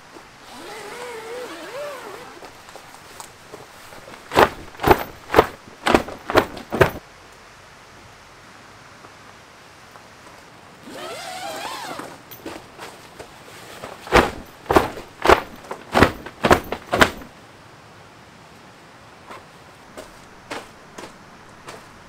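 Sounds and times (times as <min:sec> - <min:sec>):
fabric squeaking: 0:00.4 - 0:02.6, 0:03.9 - 0:07.0, 0:10.9 - 0:12.2, 0:13.6 - 0:17.3
fabric flapping and knocking: 0:03.5 - 0:07.0, 0:12.4 - 0:17.3.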